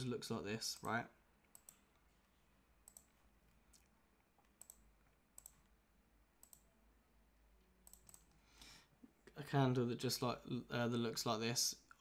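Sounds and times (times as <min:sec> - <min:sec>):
faint computer mouse clicks: 0:00.8 - 0:02.0, 0:02.8 - 0:04.8, 0:05.4 - 0:05.7, 0:06.4 - 0:06.7, 0:07.8 - 0:08.4.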